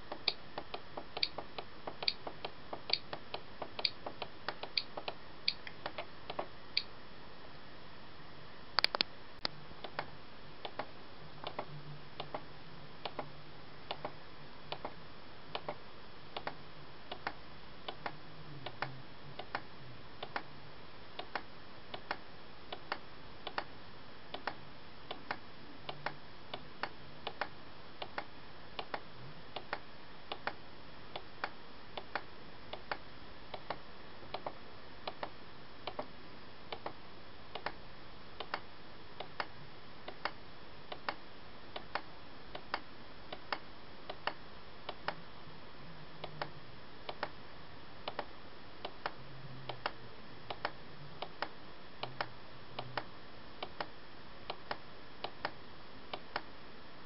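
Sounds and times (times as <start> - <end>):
faint low hum: 0.0 - 57.0
light even ticks: 0.1 - 6.9.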